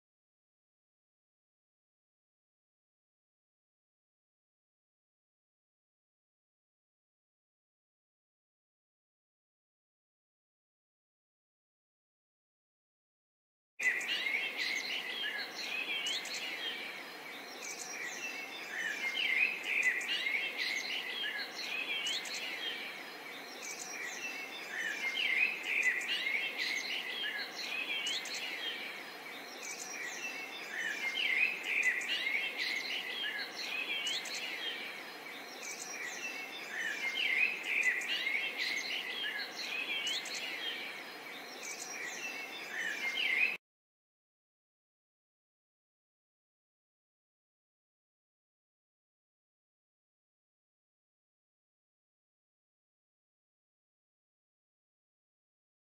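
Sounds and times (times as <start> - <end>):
faint steady hiss: 13.8 - 43.6
songbirds chirping: 13.8 - 43.6.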